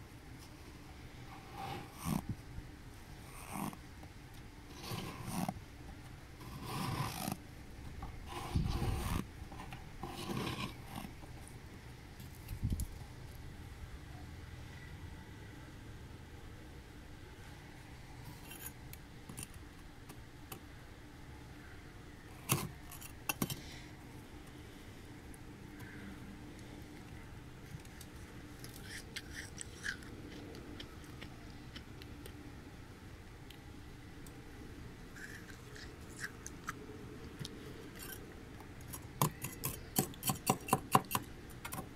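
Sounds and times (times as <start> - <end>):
fingers scraping through frost: 6.4 - 7.4, 8.2 - 9.2, 10.0 - 11.1.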